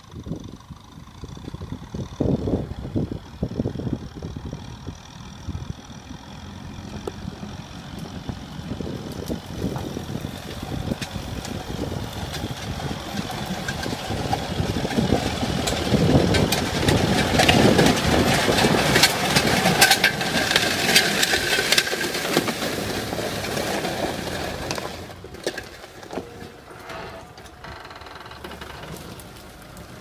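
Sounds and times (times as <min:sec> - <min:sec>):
tractor engine under load: 0:00.0 - 0:30.0
sharp cracks and clatters: 0:06.9 - 0:30.0.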